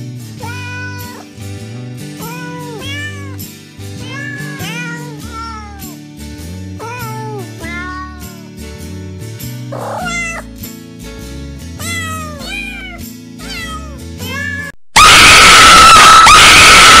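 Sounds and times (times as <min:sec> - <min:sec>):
soft background music: 0:00.0 - 0:14.7
cat meowing: 0:00.4 - 0:01.3, 0:02.2 - 0:03.4, 0:04.0 - 0:05.9, 0:06.8 - 0:08.4, 0:09.8 - 0:10.5, 0:11.8 - 0:17.0
woman screaming loudly: 0:15.0 - 0:17.0.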